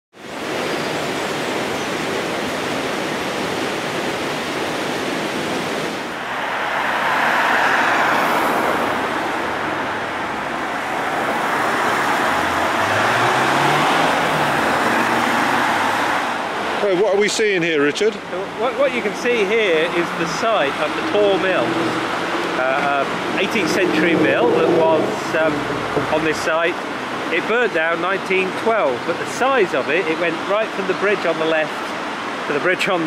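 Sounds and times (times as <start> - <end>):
cars passing: 5.4 - 32.6
low engine hum: 6.2 - 16.8, 20.8 - 27.3.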